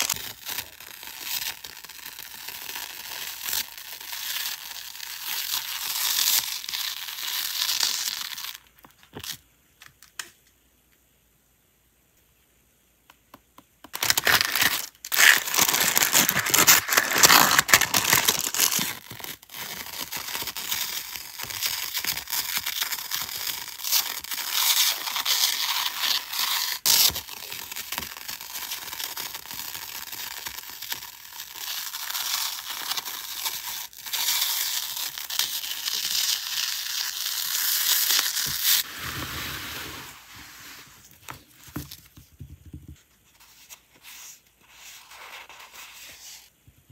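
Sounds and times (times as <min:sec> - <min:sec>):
tape peeling off roll: 0:13.9 - 0:27.7.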